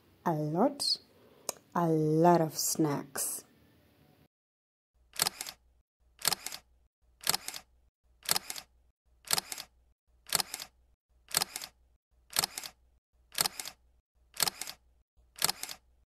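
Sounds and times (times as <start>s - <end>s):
camera shutter clicks: 5.2s - 5.6s, 6.2s - 8.7s, 9.3s - 9.7s, 10.3s - 10.7s, 11.3s - 13.8s, 14.4s - 14.8s, 15.4s - 15.8s.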